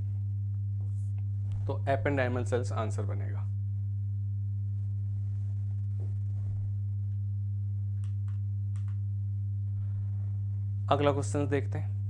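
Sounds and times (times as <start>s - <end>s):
electrical mains hum: 0.0s - 12.0s
faint clicks: 8.0s - 9.0s.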